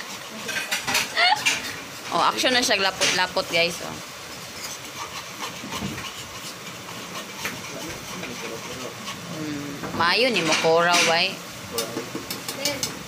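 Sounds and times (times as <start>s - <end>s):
whisk stirring thick sauce: 0.0s - 1.1s, 2.4s - 9.4s
steady hiss: 0.0s - 13.0s
whisk ticking against pan: 4.6s - 9.2s.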